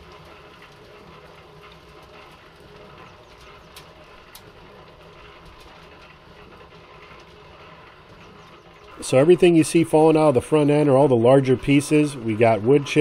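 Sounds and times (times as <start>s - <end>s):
cement mixer motor hum: 0.0s - 13.0s
rocks tumbling in a drum: 0.0s - 13.0s.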